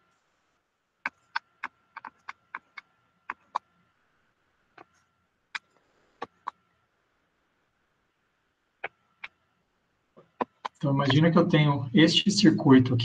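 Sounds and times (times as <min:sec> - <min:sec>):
sharp short clicks: 0:01.0 - 0:03.6.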